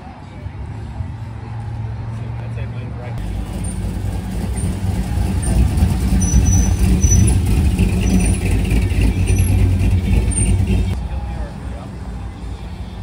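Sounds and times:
pickup truck engine rumbling: 3.2s - 13.0s.

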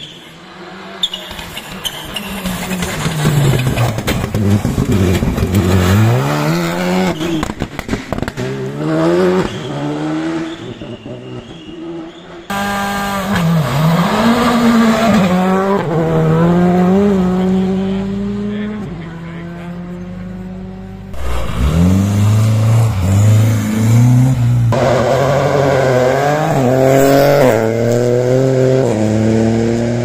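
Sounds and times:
rally car engines revving: 0.0s - 30.0s.

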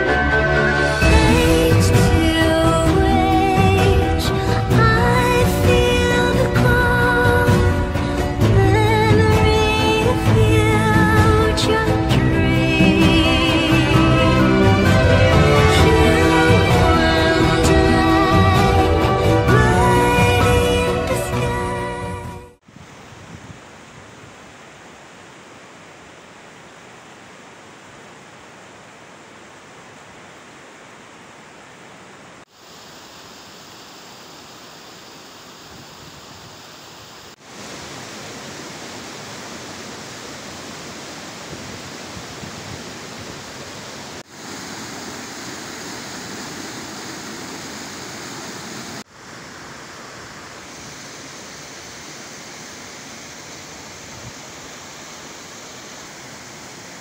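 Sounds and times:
waterfall rushing onto boulders: 32.4s - 57.0s.

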